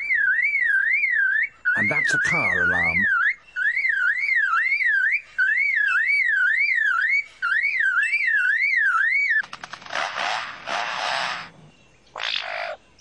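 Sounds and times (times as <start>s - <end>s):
lyrebird mimicking car alarm: 0.0s - 9.4s
harsh rasping bird call: 0.8s - 11.5s
bird rattle of clicks: 9.4s - 10.2s.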